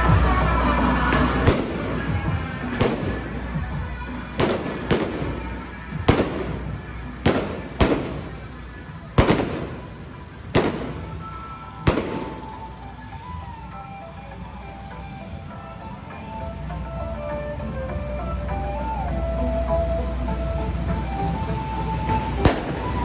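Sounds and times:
music from passing float: 0:00.0 - 0:23.0
firework bangs with echo: 0:01.1 - 0:03.4, 0:04.4 - 0:08.5, 0:09.2 - 0:12.6, 0:22.4 - 0:23.0.

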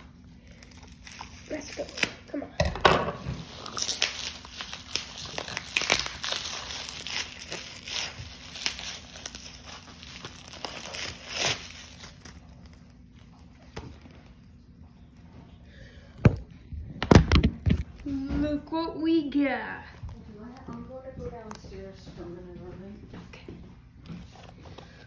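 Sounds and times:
bubble wrap crinkling and tearing: 0:00.0 - 0:02.6, 0:03.2 - 0:14.7.

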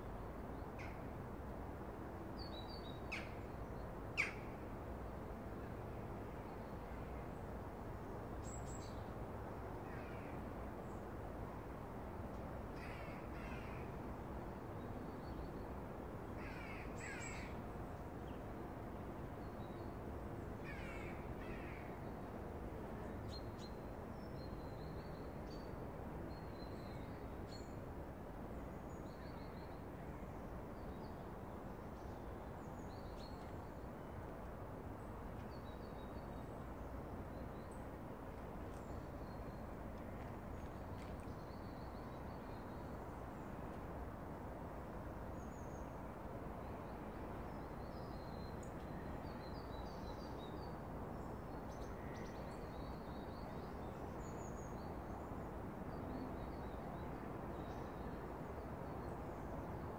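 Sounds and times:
low background hiss: 0:00.0 - 0:59.9.

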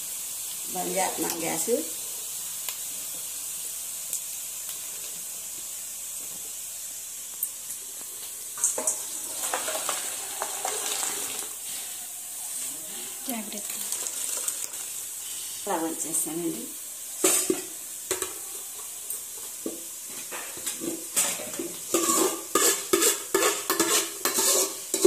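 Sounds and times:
water splashing into colander: 0:08.6 - 0:11.6, 0:13.6 - 0:14.9.

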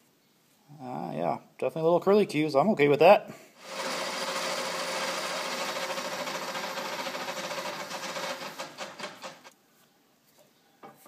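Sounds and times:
metal lathe whining: 0:03.6 - 0:09.5.

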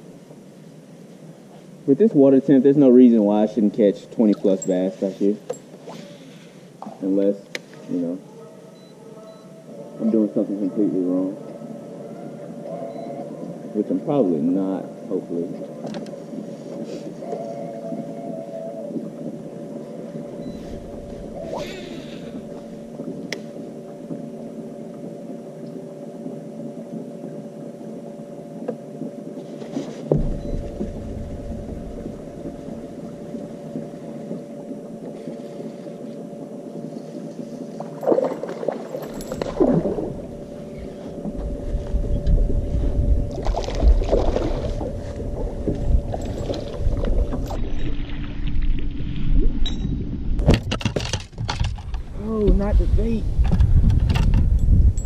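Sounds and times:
electric boat motor humming: 0:02.0 - 0:49.0
wind buffeting microphone: 0:30.1 - 0:34.5, 0:39.2 - 0:50.7, 0:51.4 - 0:55.0.

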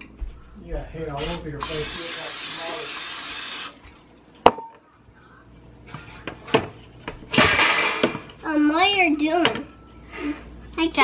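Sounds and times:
aerosol spray hissing: 0:01.2 - 0:03.8.

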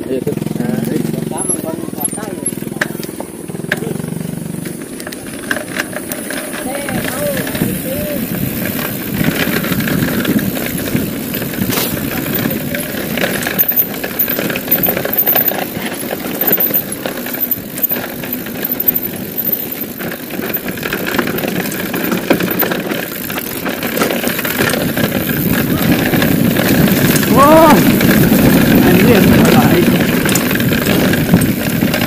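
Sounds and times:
bike rattling: 0:00.0 - 0:32.0
wind noise on microphone: 0:06.7 - 0:13.6, 0:24.2 - 0:32.0
tyre rumble on dirt: 0:08.3 - 0:14.0.

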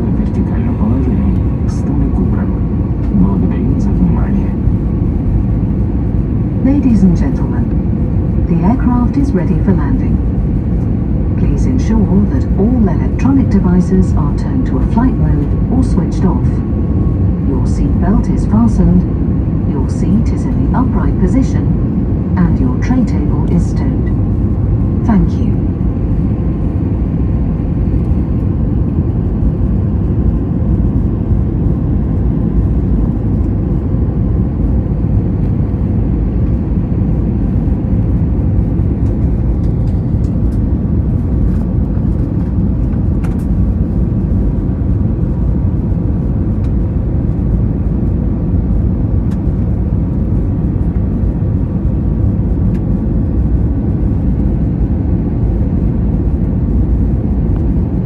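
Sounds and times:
aircraft engine hum: 0:00.0 - 0:58.0.

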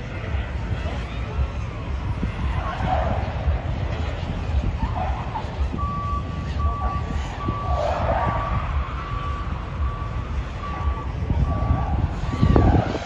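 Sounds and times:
car engine rumbling: 0:00.0 - 0:13.0
reversing beeper: 0:05.1 - 0:13.0.

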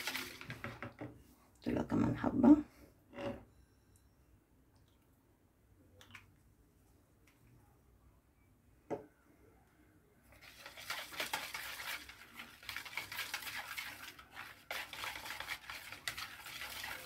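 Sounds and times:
whisk stirring batter in bowl: 0:00.0 - 0:00.6, 0:10.3 - 0:17.0.

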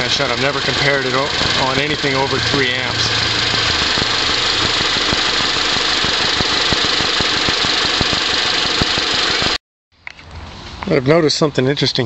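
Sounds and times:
car engine idling: 0:00.0 - 0:09.6
rapid irregular engine ticking: 0:00.0 - 0:09.6.

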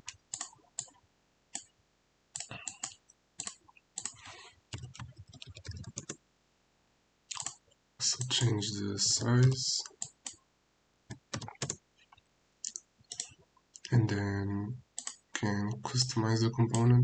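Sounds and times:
computer mouse clicks: 0:00.1 - 0:01.7, 0:02.4 - 0:06.2, 0:07.3 - 0:07.6, 0:11.1 - 0:11.8, 0:12.6 - 0:13.9, 0:15.0 - 0:15.2
keyboard typing: 0:02.4 - 0:06.2, 0:07.3 - 0:07.6, 0:11.1 - 0:11.8, 0:12.6 - 0:14.0, 0:15.0 - 0:15.2.

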